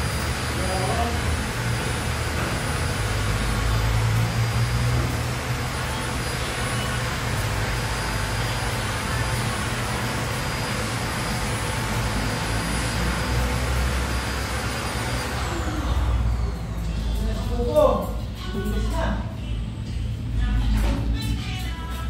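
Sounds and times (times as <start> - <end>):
electric blower whining: 0.0 - 17.0.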